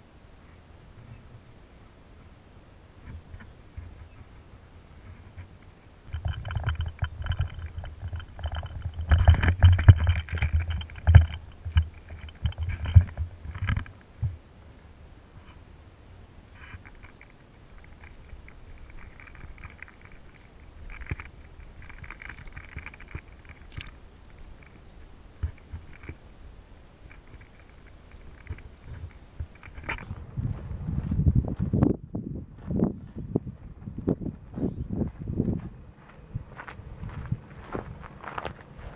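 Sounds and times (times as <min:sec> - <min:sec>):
rustling: 0:02.1 - 0:30.1
camera handling knocks and scraping: 0:06.1 - 0:13.9.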